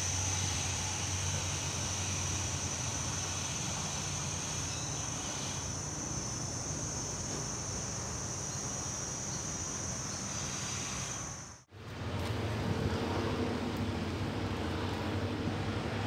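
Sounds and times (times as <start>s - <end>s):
insects buzzing: 0.0s - 11.7s
distant diesel train rumble: 0.0s - 16.0s.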